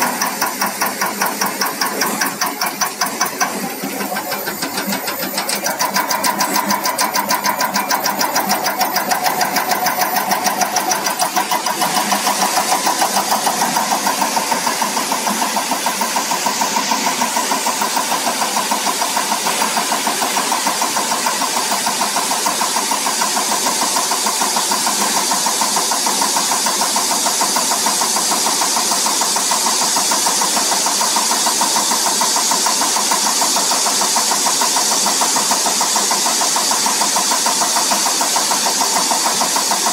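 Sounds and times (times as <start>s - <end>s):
steady machine whine: 0.0s - 30.6s
rapid mechanical ticking: 0.0s - 39.9s.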